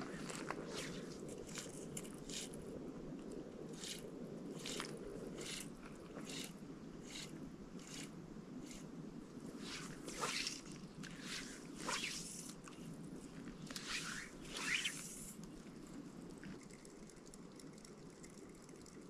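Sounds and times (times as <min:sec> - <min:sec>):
fishing line scraping through guides: 0:00.0 - 0:02.7, 0:03.7 - 0:15.5.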